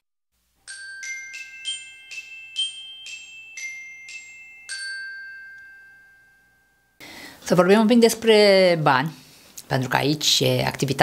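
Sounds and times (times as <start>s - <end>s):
glockenspiel-like bell jingle: 0.6s - 7.0s.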